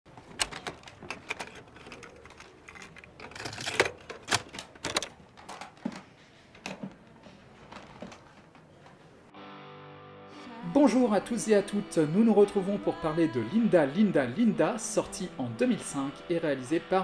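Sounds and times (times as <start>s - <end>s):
rummaging: 0.1s - 8.6s
plastic cases clicking: 0.2s - 6.8s.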